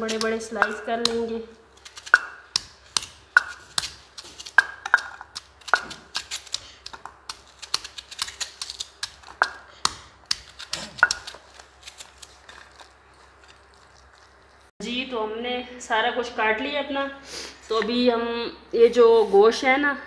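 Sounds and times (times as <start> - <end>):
knife slicing onion: 0.0 - 13.8.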